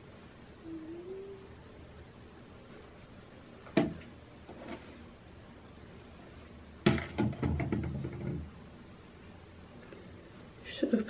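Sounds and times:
knock: 0:06.8 - 0:08.5.

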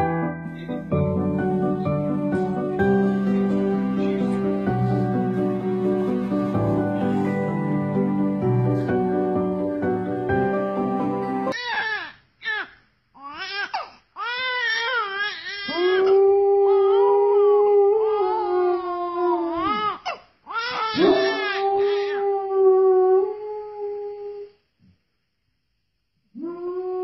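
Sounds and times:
infant crying: 0:11.5 - 0:17.0, 0:18.0 - 0:22.2
dog howling: 0:20.9 - 0:24.4.

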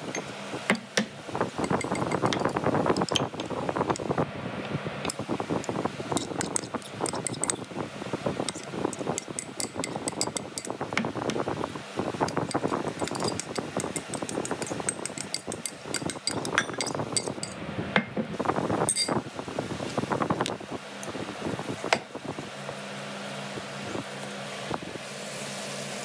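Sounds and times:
metal spoon clinking on glass bowl: 0:01.6 - 0:03.3, 0:09.2 - 0:10.7, 0:13.0 - 0:17.6.

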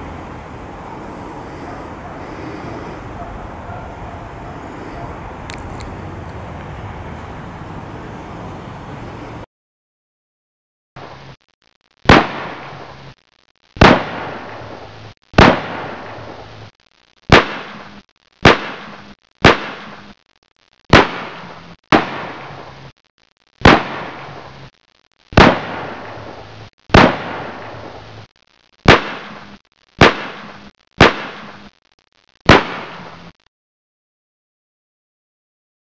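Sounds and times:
sharp echoing gunshots: 0:13.8 - 0:14.6, 0:15.4 - 0:16.2, 0:20.9 - 0:22.5, 0:23.6 - 0:24.3, 0:25.4 - 0:26.3, 0:26.9 - 0:27.8, 0:28.9 - 0:29.4, 0:30.0 - 0:31.6, 0:32.5 - 0:33.1.

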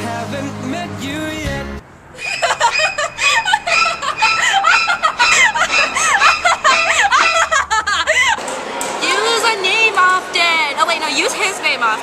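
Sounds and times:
young woman giggling: 0:02.2 - 0:08.4.

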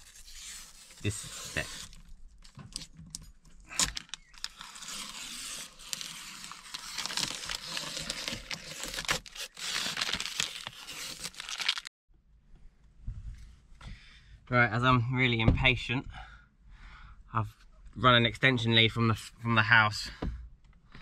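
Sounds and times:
plastic film peeling: 0:00.0 - 0:02.1, 0:03.7 - 0:11.9
plastic film crumpled in hand: 0:03.9 - 0:11.9.

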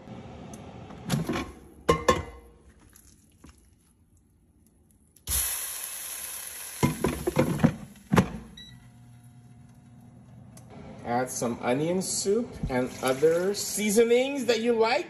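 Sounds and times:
meat sizzling: 0:05.3 - 0:07.7.

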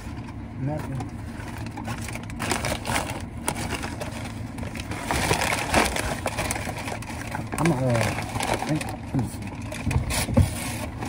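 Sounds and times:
paper bag crumpling: 0:01.2 - 0:11.0.

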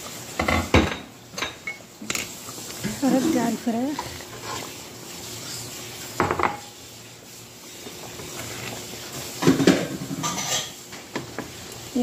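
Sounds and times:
wooden spoon scraping a pot: 0:02.2 - 0:11.6.

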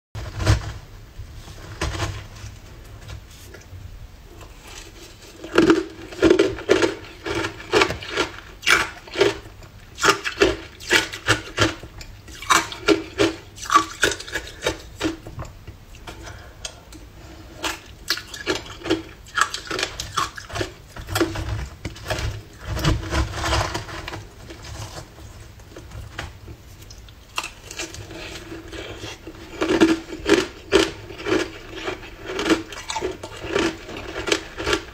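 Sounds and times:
metal spoon scraping plastic tub: 0:04.3 - 0:15.4, 0:17.1 - 0:26.4, 0:27.4 - 0:34.9
ice crunching being chewed: 0:04.4 - 0:15.2, 0:17.4 - 0:25.0, 0:26.8 - 0:34.9.

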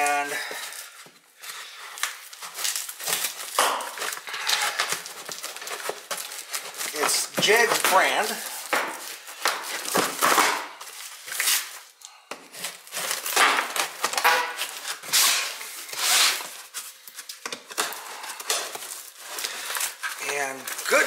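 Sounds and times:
packing tape being cut and ripped: 0:00.0 - 0:21.0
cardboard flaps scraping and crackling: 0:02.3 - 0:11.8, 0:18.7 - 0:21.0.

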